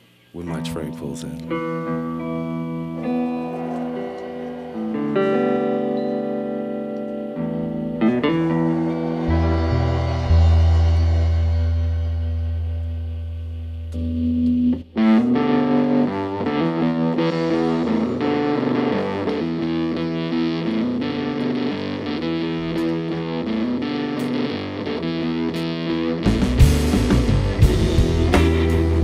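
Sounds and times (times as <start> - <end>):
distorted electric guitar: 1.4 - 29.0.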